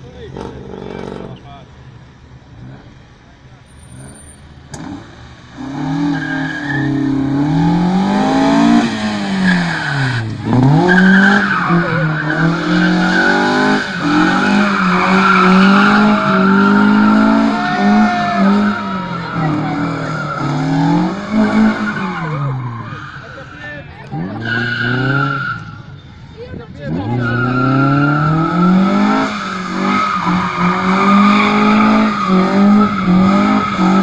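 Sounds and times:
car engine revving: 0:00.0 - 0:34.0
tyres squealing on asphalt: 0:00.0 - 0:34.0.

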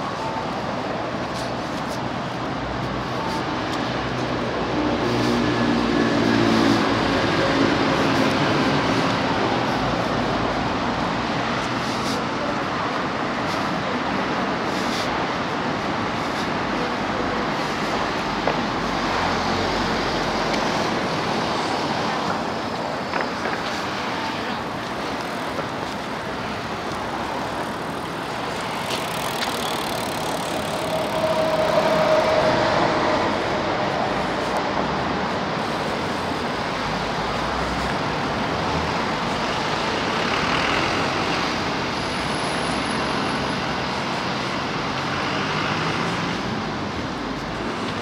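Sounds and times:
cars passing: 0:00.0 - 0:48.0.

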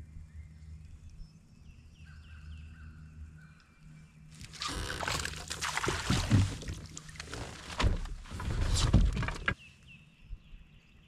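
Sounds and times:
fish splashing at water surface: 0:04.7 - 0:07.2.

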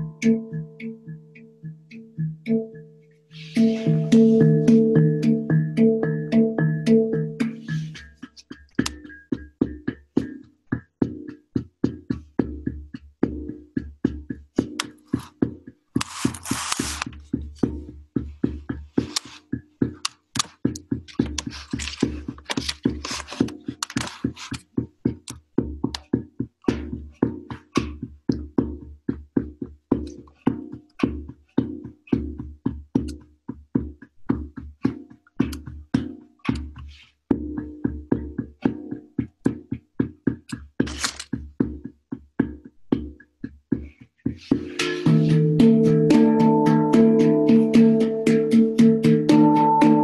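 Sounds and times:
handpan played by hand: 0:00.0 - 0:15.6, 0:44.5 - 0:50.0
bright hand slap on handpan: 0:03.5 - 0:09.2, 0:44.5 - 0:50.0.

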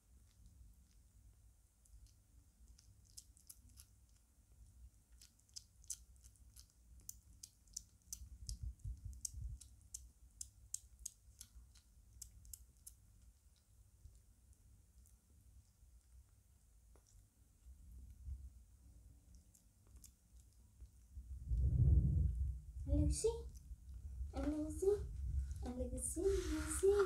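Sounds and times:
kitten chewing and licking: 0:00.0 - 0:27.0
low room hum: 0:00.0 - 0:27.0.

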